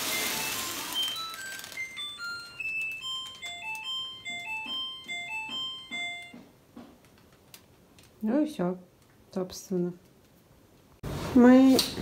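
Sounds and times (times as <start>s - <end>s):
washing machine beeping tune: 0.0s - 6.6s.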